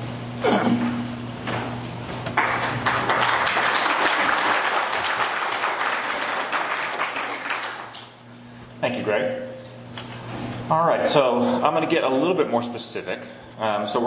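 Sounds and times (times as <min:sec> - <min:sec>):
audience applauding: 0:02.4 - 0:08.2.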